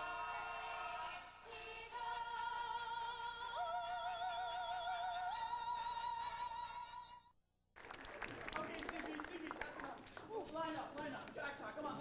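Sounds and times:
operatic singing with accompaniment: 0.0s - 7.3s.

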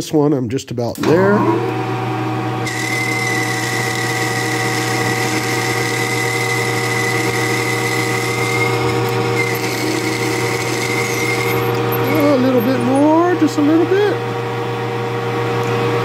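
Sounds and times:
lathe motor hum: 1.3s - 15.0s
lathe cutting high-pitched whine: 2.6s - 14.2s.

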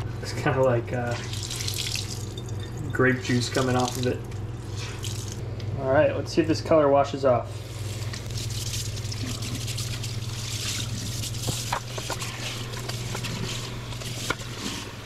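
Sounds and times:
faucet water splashing on cloth: 1.2s - 2.5s, 3.6s - 5.4s, 7.8s - 11.8s.

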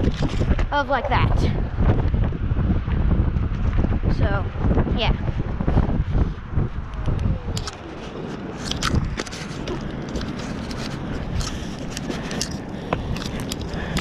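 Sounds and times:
clicks knocks and scrapes: 0.0s - 1.2s, 7.6s - 14.0s
scooter rolling over concrete: 0.0s - 1.4s, 6.9s - 14.0s
jacket brushing camera: 7.2s - 14.0s.

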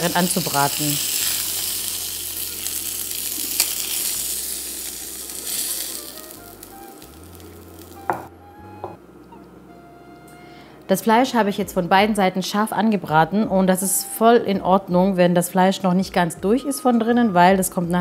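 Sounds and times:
chicken sizzling in frying pan: 0.0s - 8.2s.

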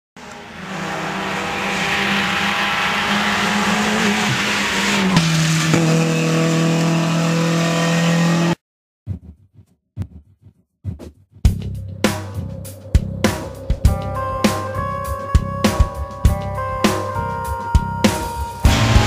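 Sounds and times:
rally car engine at high revs: 0.2s - 8.6s, 18.6s - 19.0s.

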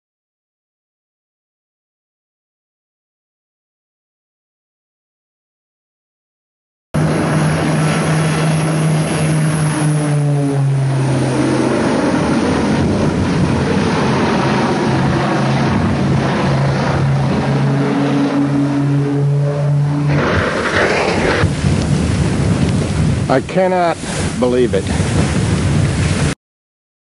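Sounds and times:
propeller plane engines droning: 7.0s - 25.0s.

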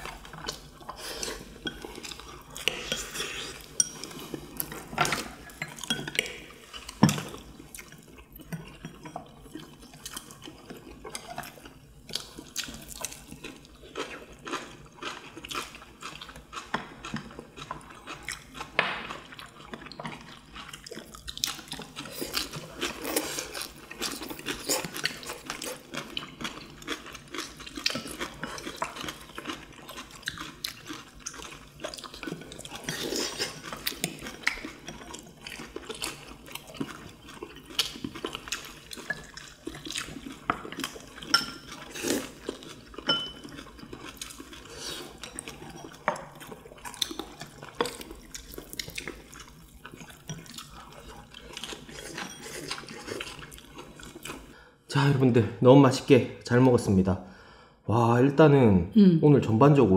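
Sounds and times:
wet chewing and slurping: 0.0s - 54.6s
chopsticks clinking on ceramic bowls: 1.6s - 6.4s, 40.4s - 42.0s, 42.6s - 46.6s, 50.0s - 53.4s.

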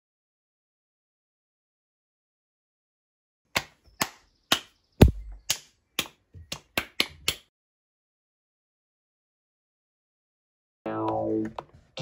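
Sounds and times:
sharp hand claps: 3.5s - 7.5s.

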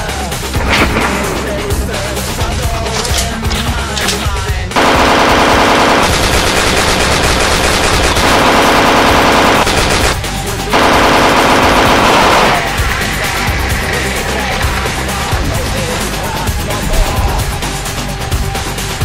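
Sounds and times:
background music: 0.0s - 7.1s, 8.3s - 19.0s
machine-gun fire: 0.5s - 13.3s.

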